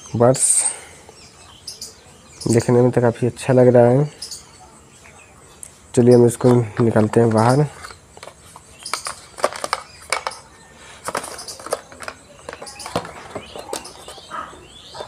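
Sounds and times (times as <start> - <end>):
plastic tray clicking and crackling: 7.8 - 14.2.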